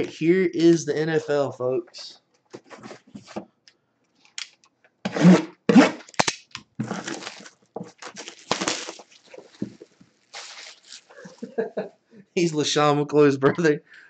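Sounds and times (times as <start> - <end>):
cardboard box tearing and crinkling: 5.1 - 11.1
plastic wrapping rustling: 6.1 - 11.6.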